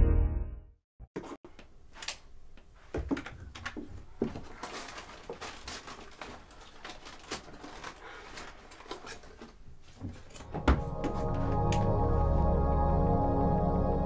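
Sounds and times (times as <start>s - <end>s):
rummaging in desk drawer: 4.2s - 11.6s.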